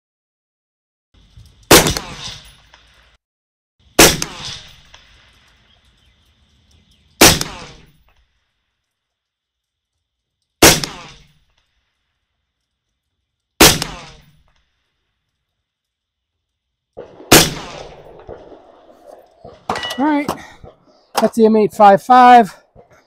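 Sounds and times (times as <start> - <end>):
suppressed rifle shots: 1.7 - 2.5, 4.0 - 5.1, 7.2 - 7.9, 10.6 - 11.4, 13.6 - 14.4, 17.0 - 19.8.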